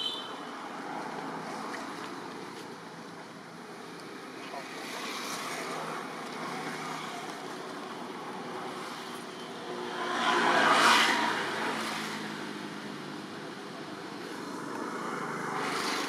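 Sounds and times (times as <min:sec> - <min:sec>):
rumble of motor traffic: 0:00.0 - 0:16.0
vehicle passing by: 0:09.7 - 0:12.9.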